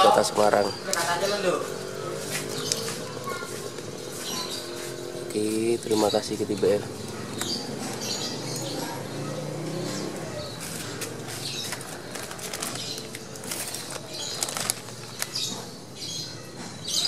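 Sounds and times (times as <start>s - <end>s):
birds fluttering: 0.0s - 16.2s
plastic parcel rustling and crackling: 5.4s - 8.7s, 10.0s - 15.8s.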